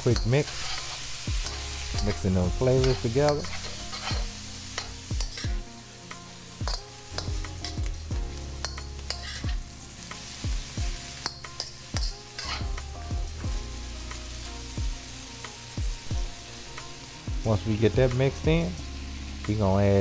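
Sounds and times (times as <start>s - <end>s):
metal spatula scraping a pan: 0.0s - 5.5s, 8.6s - 9.6s, 11.1s - 12.8s
vegetables sizzling in a wok: 0.0s - 20.0s.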